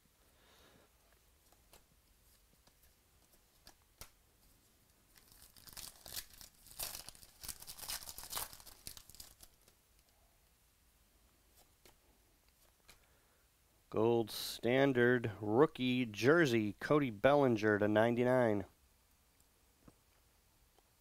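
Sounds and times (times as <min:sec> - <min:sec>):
foil wrapper tearing and crinkling: 0:05.1 - 0:09.7.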